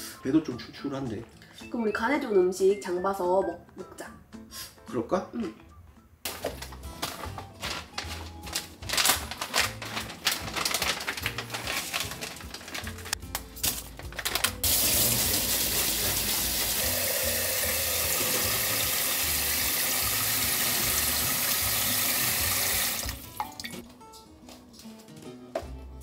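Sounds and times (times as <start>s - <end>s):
faucet water running into pot: 14.6s - 23.8s.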